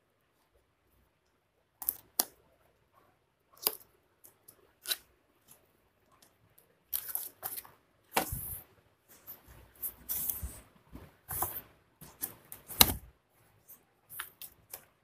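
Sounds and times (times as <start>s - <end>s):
cardboard scrapes and clicks: 9.2s - 13.1s.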